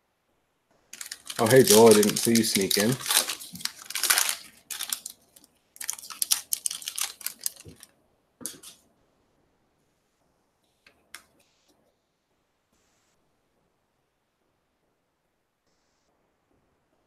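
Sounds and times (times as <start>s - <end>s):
foil wrapper crinkling and tearing: 1.0s - 7.9s.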